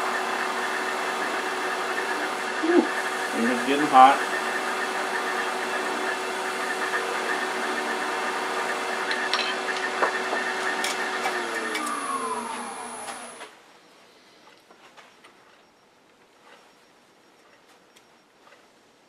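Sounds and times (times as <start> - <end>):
wood lathe motor whine: 0.0 - 13.5.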